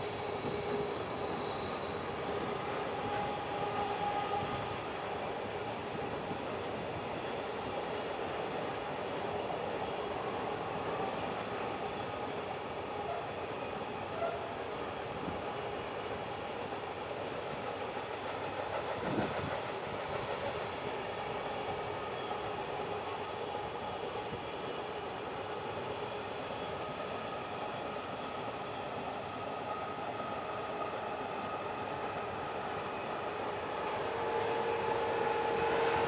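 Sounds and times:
high-pitched wheel squeals: 0.0 - 2.8, 17.4 - 21.0
train wagons rumbling on rails: 15.1 - 24.7.

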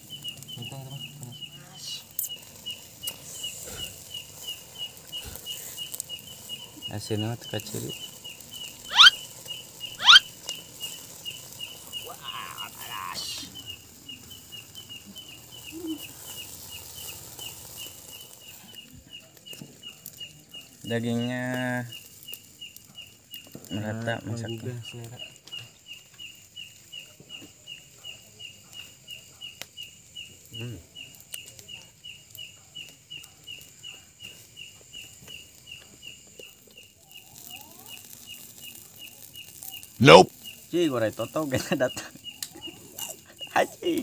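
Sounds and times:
faint hiss: 0.0 - 44.0
insect chirping: 0.0 - 44.0
faint chewing: 2.2 - 6.9, 32.6 - 40.0, 42.0 - 44.0
high-pitched insect buzz: 7.8 - 18.2, 36.8 - 44.0.

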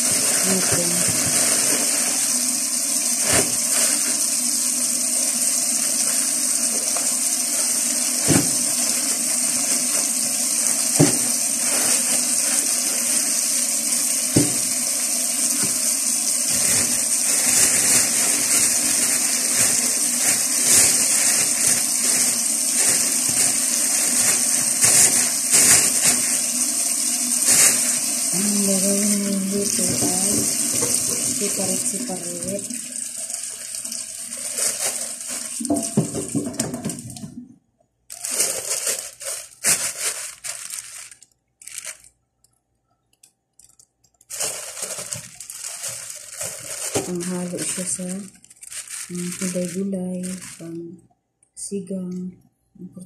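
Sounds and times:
plastic bags rustling: 0.0 - 4.5, 5.6 - 14.8, 15.4 - 37.1, 38.1 - 42.1, 44.2 - 50.8
tap running into a sink: 3.1 - 4.3, 5.5 - 19.8, 29.5 - 37.4.

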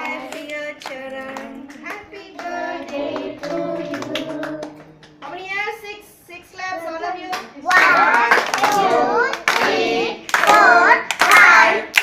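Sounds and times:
children singing: 0.0 - 5.0, 7.7 - 12.0
children clapping to a beat: 0.0 - 5.4, 7.3 - 12.0.

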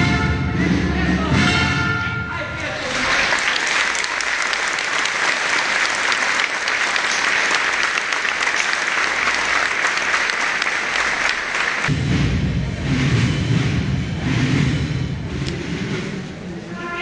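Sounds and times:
crowd applauding: 2.6 - 11.9.

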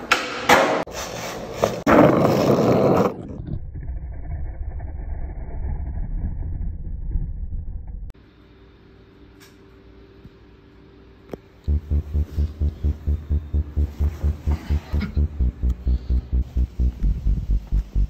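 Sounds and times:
skateboard rolling over concrete: 1.6 - 3.5
steady low rumble: 11.7 - 18.0.

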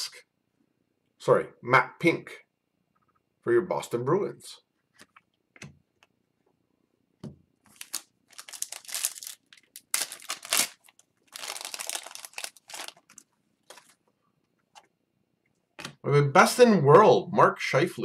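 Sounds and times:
foil wrapper tearing and crinkling: 7.7 - 14.0.

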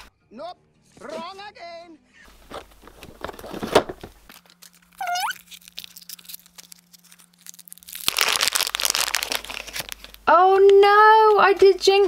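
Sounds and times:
foil packet crinkling: 2.6 - 11.4
high upward squeak: 5.0 - 5.4.

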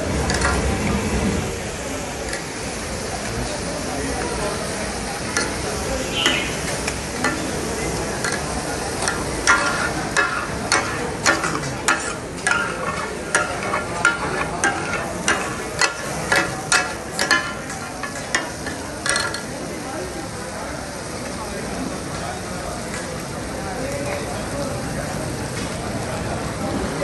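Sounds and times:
food sizzling: 0.0 - 27.0
metal spatulas clanking on griddle: 0.1 - 0.9, 2.2 - 3.3, 5.2 - 19.7.

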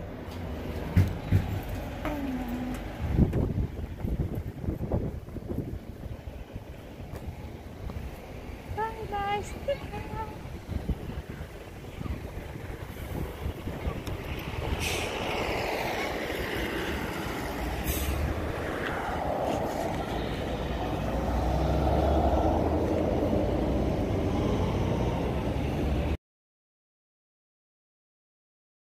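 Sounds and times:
heavy low rumble: 0.0 - 26.2
road traffic rumble: 0.0 - 26.2
vehicles passing with whines: 0.0 - 26.2.

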